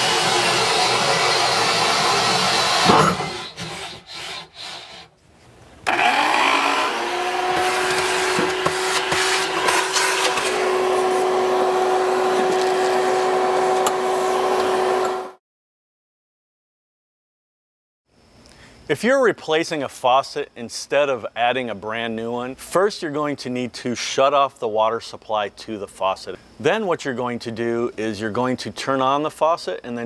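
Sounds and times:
vacuum humming: 0.0s - 3.4s, 5.8s - 15.4s
drill cutting with hole saw: 0.0s - 5.1s, 5.9s - 15.4s.

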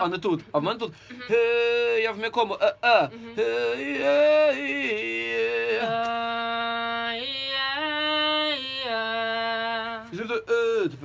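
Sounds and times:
person singing sustained vowel: 3.1s - 10.1s.

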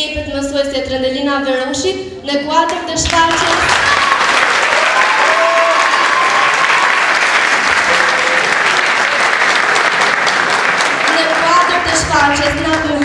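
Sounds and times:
crowd applauding: 3.3s - 13.0s.

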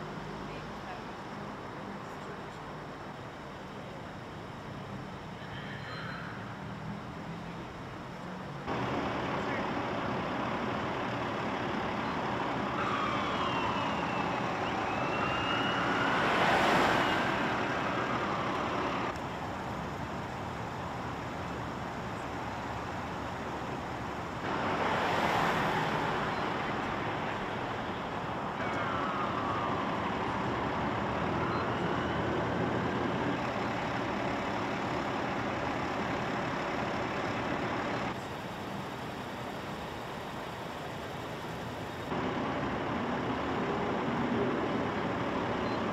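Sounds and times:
road traffic: 0.0s - 45.9s
emergency siren wailing: 8.7s - 19.1s, 24.6s - 34.3s
cars passing close by: 8.7s - 19.2s, 23.7s - 38.2s.

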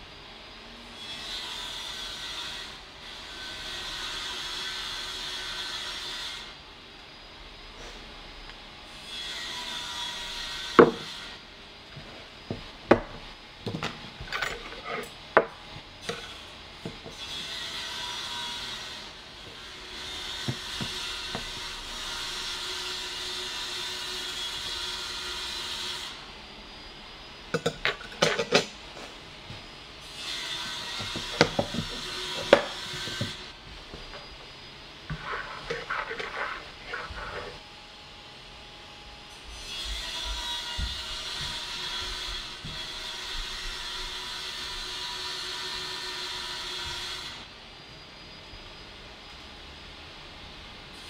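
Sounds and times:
utensils clinking on ceramic plate: 27.6s - 28.7s.

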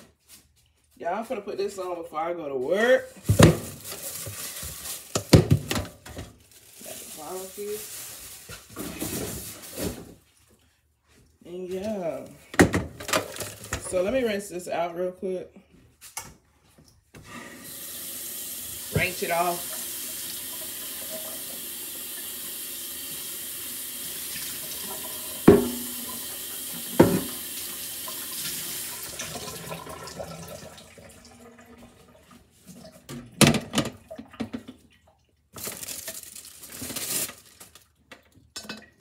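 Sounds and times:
tap water running into sink: 17.6s - 35.6s.

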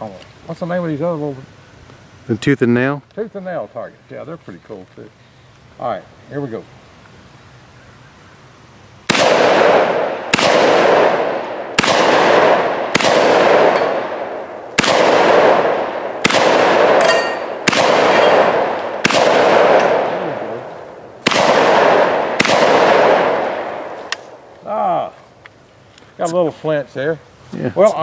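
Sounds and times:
shotgun shots echoing: 9.1s - 24.5s
steel target ringing: 17.0s - 18.6s.

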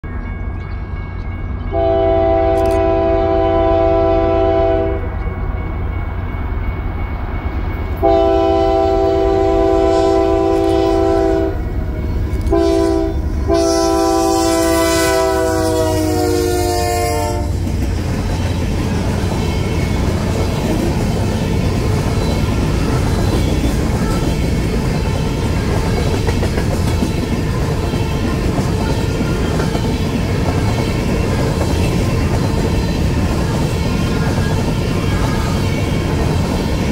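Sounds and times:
locomotive air horn blasts: 1.7s - 5.1s, 8.0s - 17.6s.

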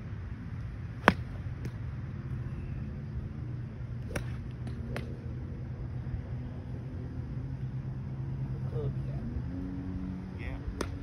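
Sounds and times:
steady low hum: 0.0s - 11.0s
golf club striking ball: 1.0s - 1.8s, 4.0s - 5.1s.

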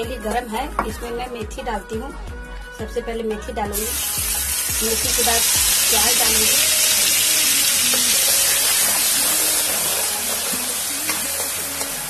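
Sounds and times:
onion sizzling in hot oil: 3.7s - 12.0s.

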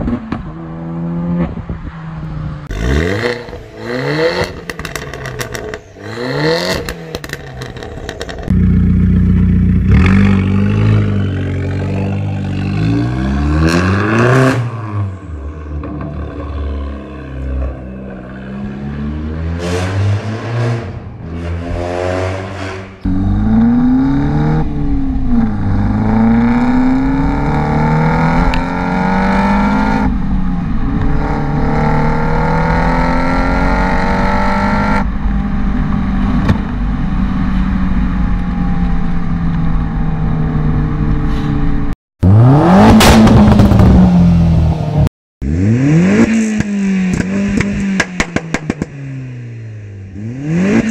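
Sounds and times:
car exhaust revving: 2.6s - 38.5s, 42.2s - 50.9s
exhaust pops: 46.6s - 49.0s.

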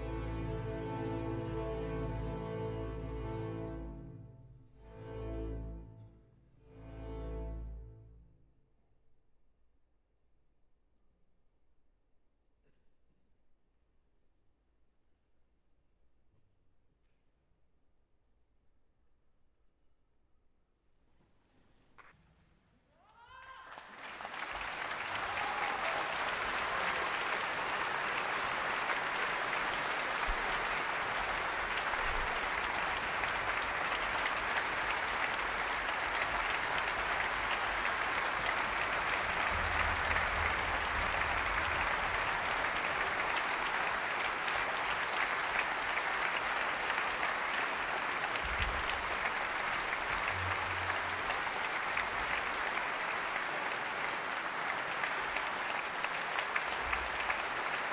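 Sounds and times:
audience applauding: 23.2s - 57.9s.

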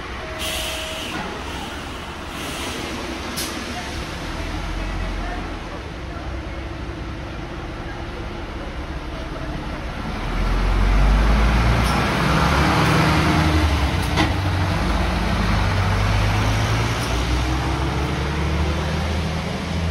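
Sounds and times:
bus diesel engine pulling away: 0.0s - 19.9s.

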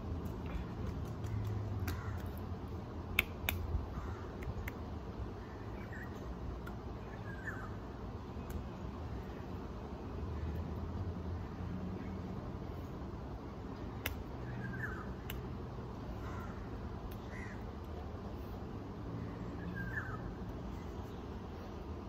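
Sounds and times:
bird calls: 19.2s - 21.3s.

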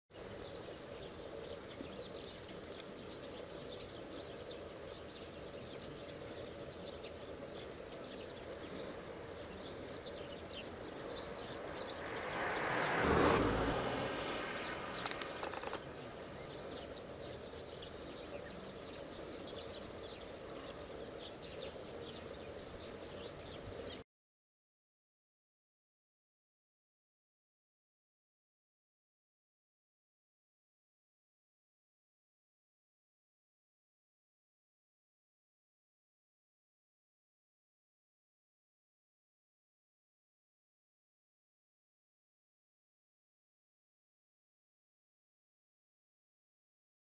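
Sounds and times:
bird chirps: 0.4s - 13.4s, 14.0s - 24.0s
vehicle passing: 10.6s - 16.2s
sharp click: 15.0s - 15.8s
steady background hiss: 15.8s - 24.0s.

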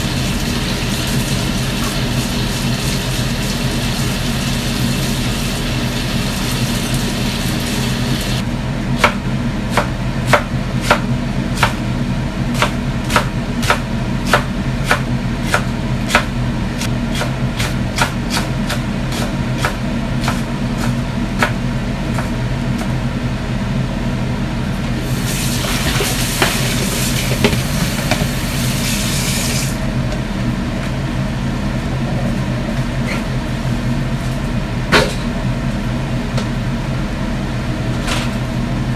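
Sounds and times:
range hood fan hum: 0.0s - 38.9s.

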